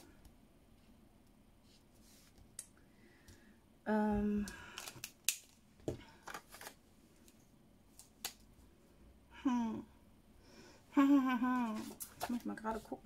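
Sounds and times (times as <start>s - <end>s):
woman humming: 3.9s - 4.6s, 9.3s - 10.0s, 10.9s - 12.0s.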